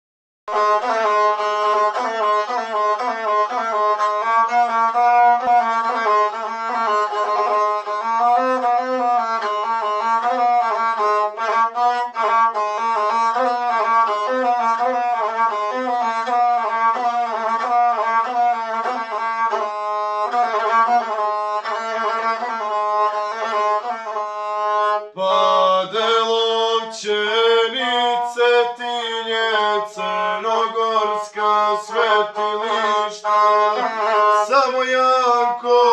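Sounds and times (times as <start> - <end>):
bowed single-string fiddle: 0.5 - 35.9
young man singing: 25.2 - 35.9.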